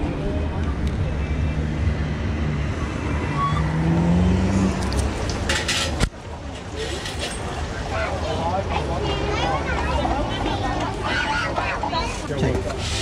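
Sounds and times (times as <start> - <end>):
road noise: 0.0 - 13.0
vehicle engine rising in pitch: 1.3 - 5.2.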